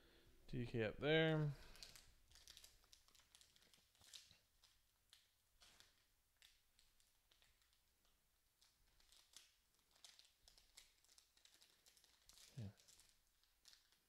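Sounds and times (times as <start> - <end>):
foil wrapper crinkling: 1.6 - 14.0.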